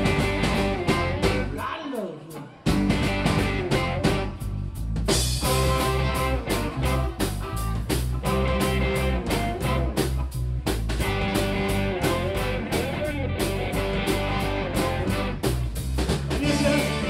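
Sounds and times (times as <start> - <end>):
electric guitar: 0.0 - 1.6, 2.3 - 4.5, 5.1 - 17.0
steady drum beat: 0.0 - 1.6, 2.7 - 17.0
bass: 0.0 - 1.7, 2.7 - 17.0
saxophone: 14.4 - 15.5.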